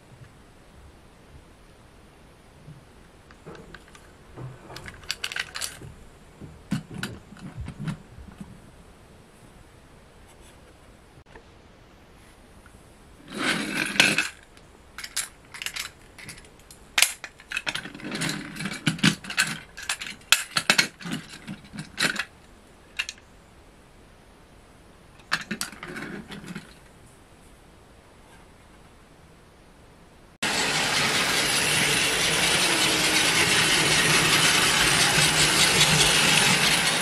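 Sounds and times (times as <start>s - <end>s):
toy cars scraping on wooden floor: 13.3s - 14.4s, 30.4s - 37.0s.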